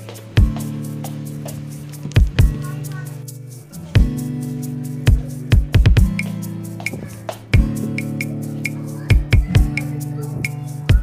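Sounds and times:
background music with steady beat: 0.0s - 11.0s
low drum hits: 0.4s - 2.7s, 5.1s - 11.0s.

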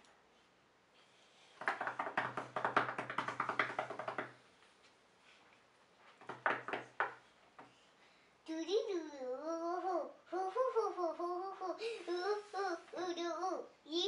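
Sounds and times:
rapid taps like drumroll: 1.6s - 4.4s, 6.2s - 7.2s.

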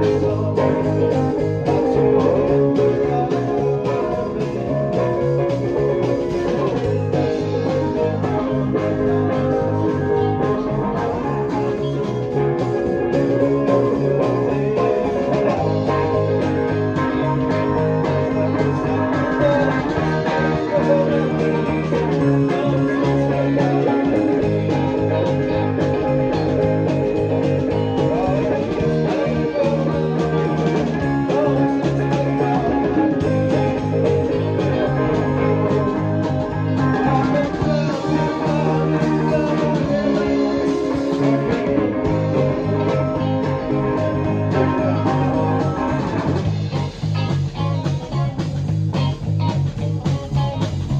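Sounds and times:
drums: 0.0s - 50.9s
electric bass guitar line: 0.0s - 50.9s
electric guitar: 0.0s - 50.9s
rock band playing: 0.0s - 50.9s.

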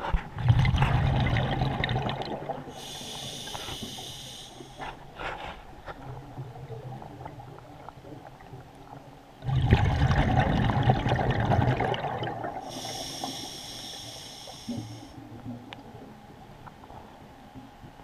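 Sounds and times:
exhaled bubbles crackling: 0.2s - 4.1s, 5.9s - 13.5s
regulator inhale hiss: 2.7s - 5.0s, 12.6s - 15.2s.

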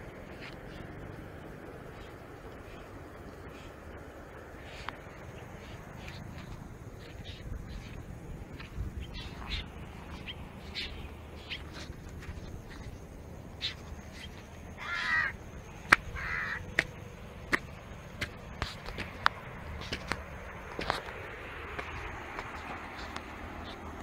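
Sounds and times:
low background rumble: 0.0s - 24.0s
bird harsh raspy calls: 1.8s - 17.0s.

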